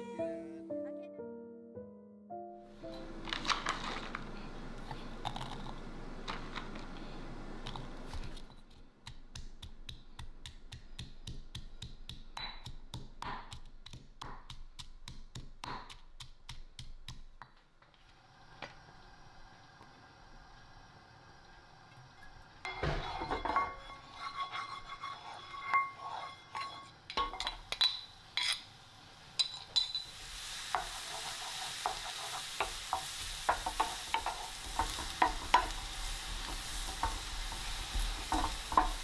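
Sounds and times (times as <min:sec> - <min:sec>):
scraping and handling noise: 0:02.8 - 0:08.9.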